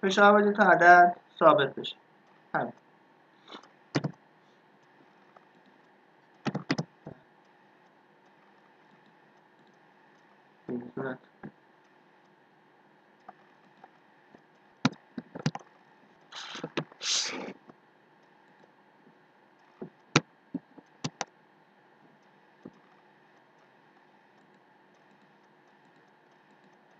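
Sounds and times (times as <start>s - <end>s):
mouse and keyboard clicks: 3.5s - 4.2s, 4.8s - 7.2s, 13.2s - 17.0s, 19.6s - 21.3s, 22.6s - 26.9s
short hissing noises: 16.3s - 17.6s.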